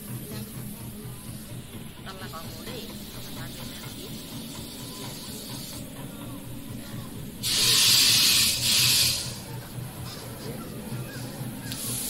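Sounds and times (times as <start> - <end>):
loud hiss: 7.4 - 9.5.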